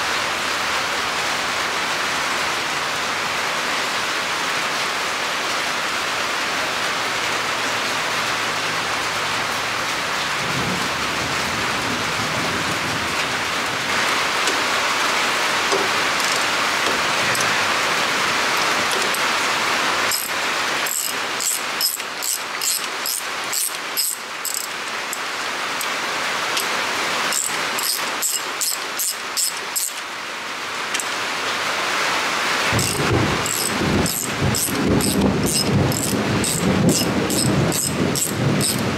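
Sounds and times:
steady rushing hiss: 12.7 - 38.9
socket ratchet clicking: 15.7 - 16.5, 20.1 - 25.2, 27.3 - 30.0, 32.8 - 38.9.

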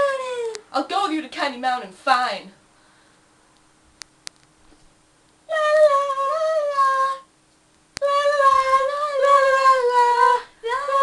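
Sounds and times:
high voice singing wordless tune: 0.0 - 2.6, 5.5 - 7.3, 8.0 - 11.0.

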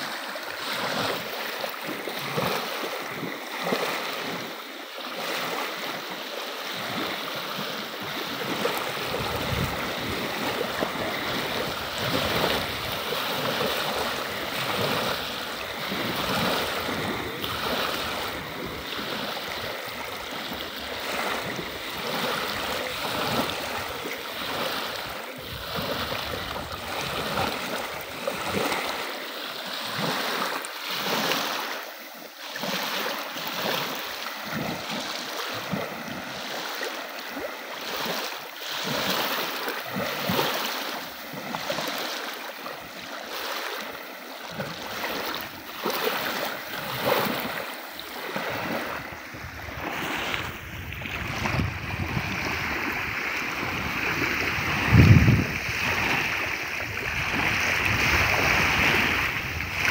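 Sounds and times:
waves lapping on gravel: 0.0 - 59.9
wind buffeting microphone: 8.2 - 28.9, 48.2 - 59.9.

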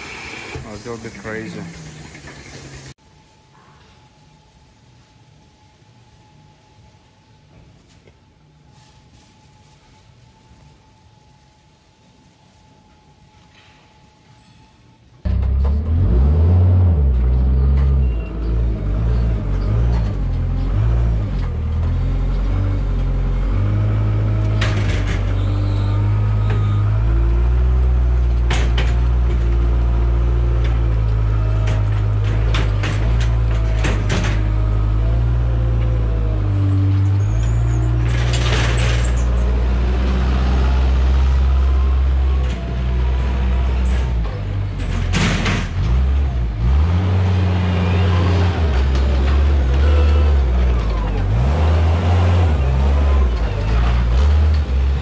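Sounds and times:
diesel engine under load: 15.3 - 55.0.

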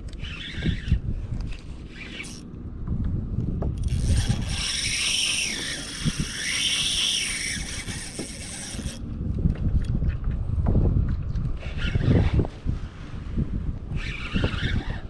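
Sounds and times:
fishing reel whirring: 0.0 - 2.5, 3.8 - 9.0, 14.0 - 15.0
wind on microphone: 0.0 - 15.0.

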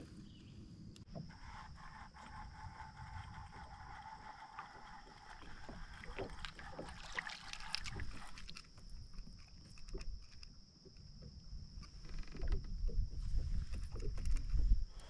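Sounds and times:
water sloshing: 1.2 - 10.3
fish splashing at surface: 5.9 - 8.6.

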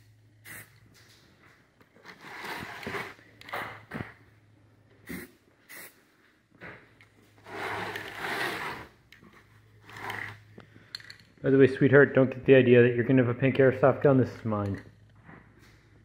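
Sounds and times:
spray paint can hissing: 0.4 - 0.8, 5.1 - 6.0.

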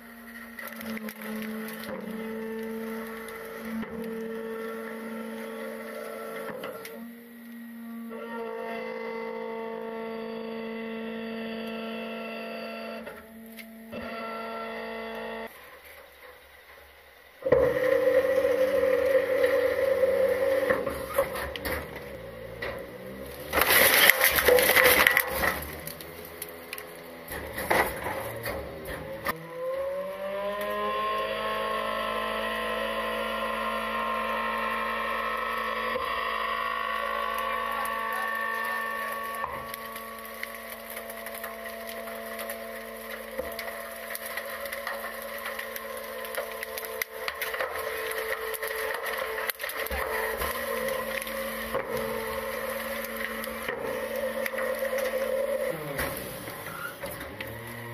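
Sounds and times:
garbage truck hydraulics whining: 0.0 - 57.9
trash crashing into hopper: 17.5 - 29.4, 36.6 - 57.9.

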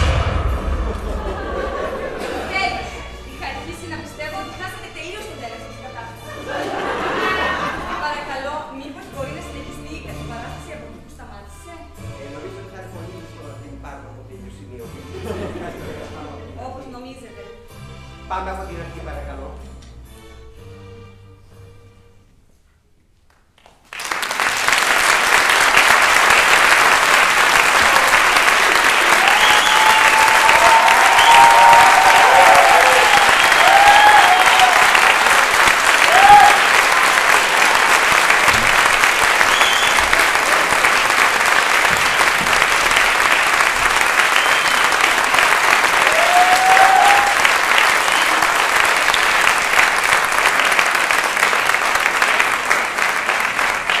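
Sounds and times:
audience applauding: 23.6 - 54.0
people cheering: 24.2 - 54.0.

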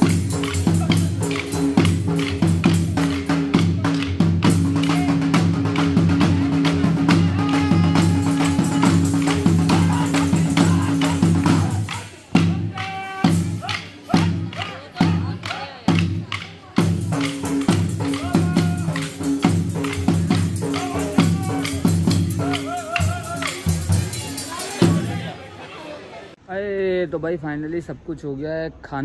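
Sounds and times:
dhol drumming: 0.0 - 25.3.

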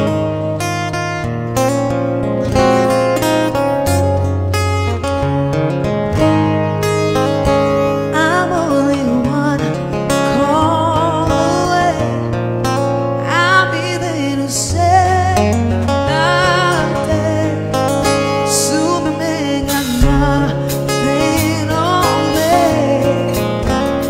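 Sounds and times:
strummed guitar: 0.0 - 24.0
woman singing lead vocal: 8.0 - 12.4, 13.2 - 24.0
drums: 19.7 - 24.0.

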